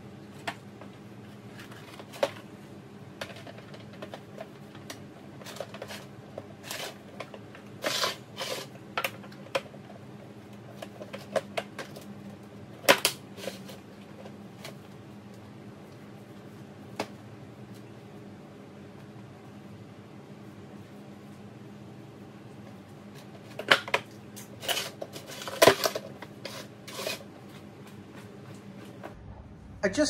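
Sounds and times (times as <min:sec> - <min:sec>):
plastic parts clicking and knocking: 0:03.2 - 0:06.0.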